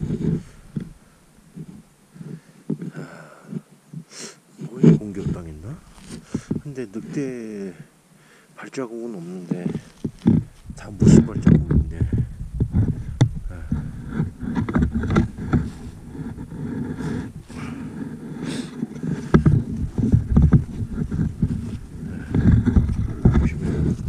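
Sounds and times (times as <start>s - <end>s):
footsteps through snow: 4.7s - 6.3s, 13.6s - 24.0s.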